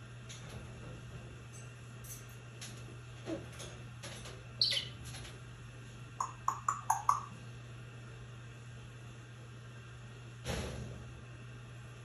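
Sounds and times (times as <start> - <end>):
parrot whistling: 4.6 - 4.9
parrot chirping: 4.6 - 5.0, 6.2 - 7.3.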